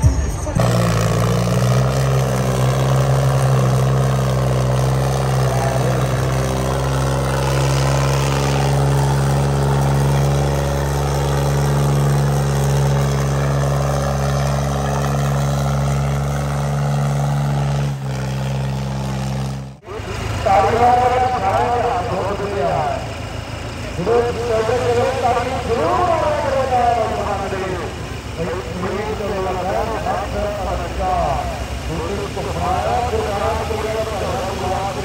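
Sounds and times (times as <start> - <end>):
tractor diesel engine under load: 0.0 - 35.0.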